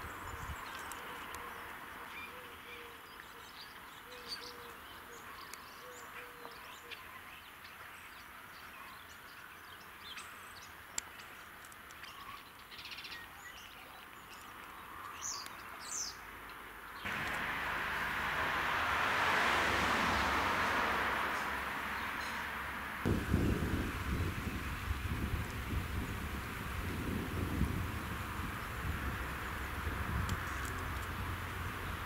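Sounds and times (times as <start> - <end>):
birds chirping: 0.0 - 32.0
faint steady hiss: 0.0 - 32.0
steady rushing noise: 17.1 - 32.0.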